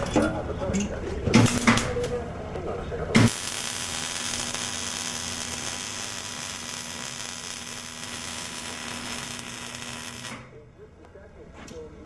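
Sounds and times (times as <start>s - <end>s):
welding arc hissing: 3.2s - 10.5s.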